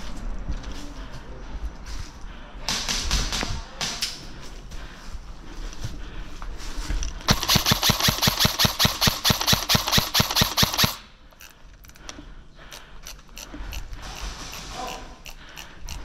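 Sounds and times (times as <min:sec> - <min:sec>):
airsoft gun rapid firing: 0:07.3 - 0:11.1.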